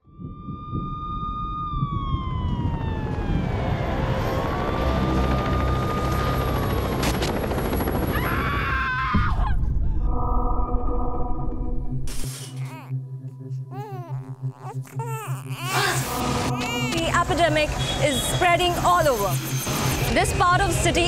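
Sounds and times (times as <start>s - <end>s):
emergency sirens wailing: 0.0s - 9.2s, 15.7s - 21.0s
helicopter rumble: 0.0s - 12.0s
warbling siren: 0.0s - 12.1s.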